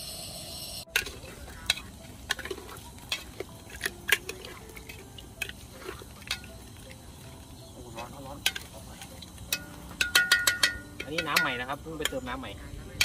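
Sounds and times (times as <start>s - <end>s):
metal spoon clinking in pot: 6.2s - 6.6s, 9.5s - 12.2s.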